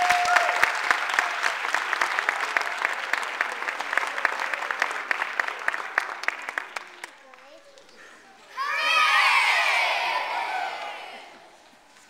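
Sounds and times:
audience applauding: 0.0 - 7.4.

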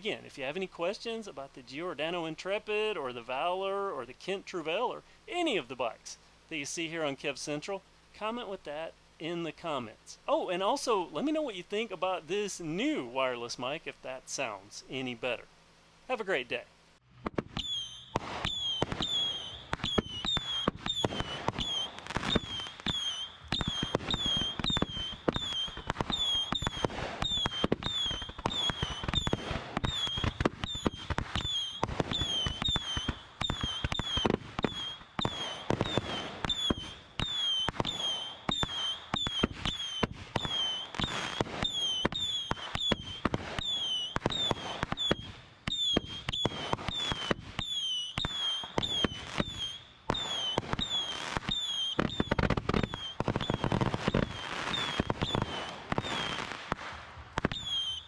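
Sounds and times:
fireworks bangs and crackle: 17.0 - 58.0
high falling chirp: 17.6 - 56.4.

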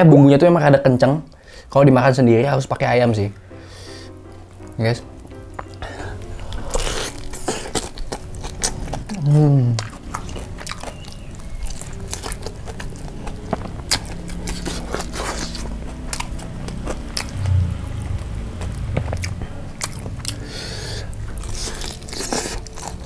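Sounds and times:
crunching of fried skin: 3.3 - 23.0
chewing: 3.6 - 23.0
biting into fried chicken: 6.5 - 17.5.

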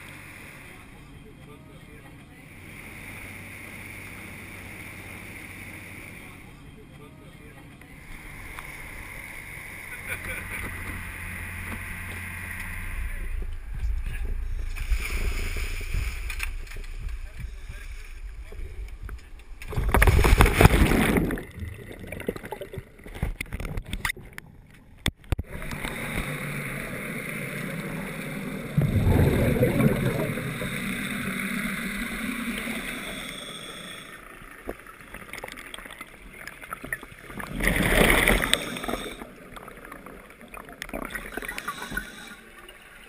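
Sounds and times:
steady underwater hum: 0.0 - 43.0
regulator bubbles rushing: 12.3 - 24.4, 25.4 - 41.8.

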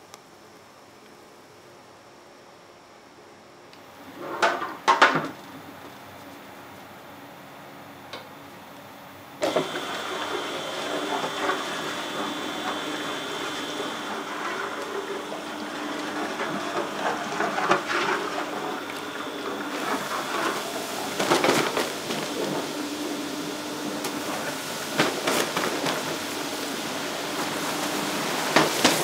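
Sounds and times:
factory machinery humming: 9.1 - 29.0.

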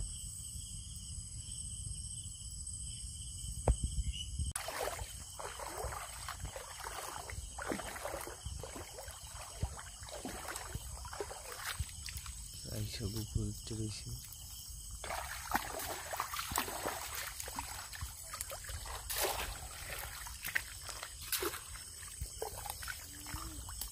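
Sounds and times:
feet wading through muddy water: 4.6 - 23.9.

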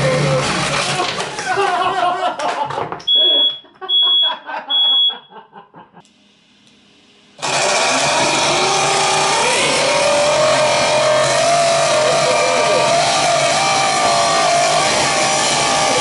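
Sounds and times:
man laughing: 0.8 - 3.0, 3.6 - 6.0, 11.7 - 13.3
smoke alarm beeping: 3.1 - 5.4
toy jet engine whine: 7.4 - 16.0.

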